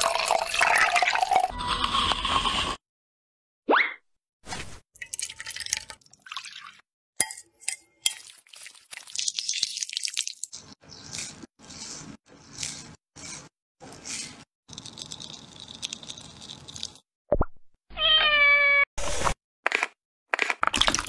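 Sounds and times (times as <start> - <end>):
batter stirred with spatula: 7.4 - 17.0.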